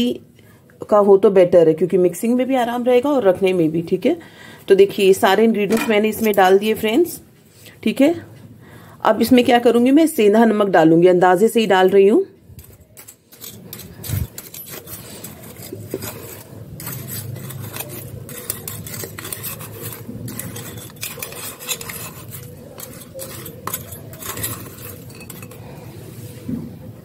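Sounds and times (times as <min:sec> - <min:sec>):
bowl clinks and scrapes: 0:12.6 - 0:26.0.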